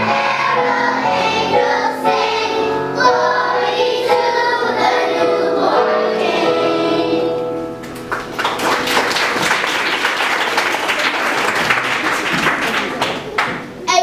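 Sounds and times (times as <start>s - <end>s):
children's choir singing: 0.0s - 7.7s
audience applause: 7.8s - 13.7s.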